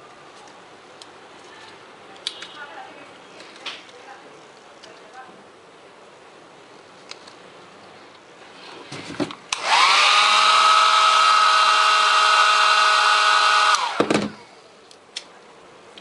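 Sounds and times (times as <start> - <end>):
hair dryer motor whining: 9.5 - 14.2.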